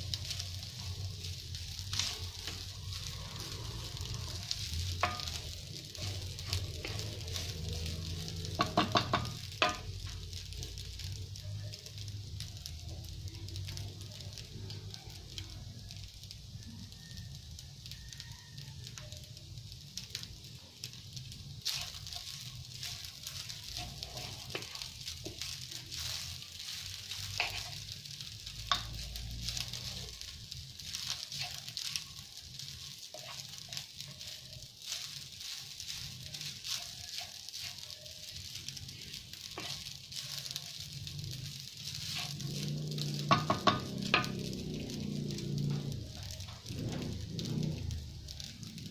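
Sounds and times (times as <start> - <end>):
wooden spoon scraping a pan: 0.0 - 10.2, 21.6 - 48.0
rice sizzling in a frying pan: 0.0 - 48.9.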